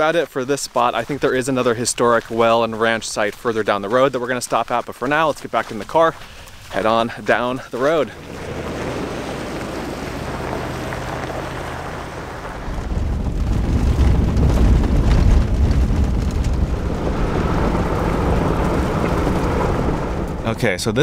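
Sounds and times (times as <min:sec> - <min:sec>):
tyres rumbling on gravel: 0:00.0 - 0:21.0
car engine hum: 0:07.8 - 0:21.0.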